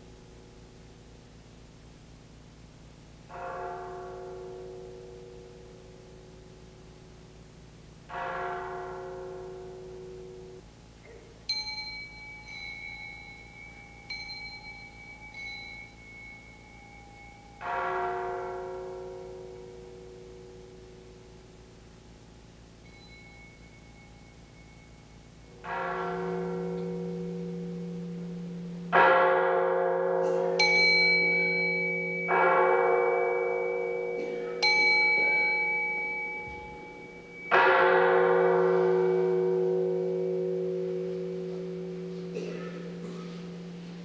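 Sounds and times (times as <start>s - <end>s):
temple bells ringing: 3.3s - 6.9s, 8.0s - 44.0s
deep steady hum: 9.5s - 29.1s
small high-pitched bell ringing: 11.4s - 18.2s, 22.8s - 28.0s, 30.2s - 40.2s.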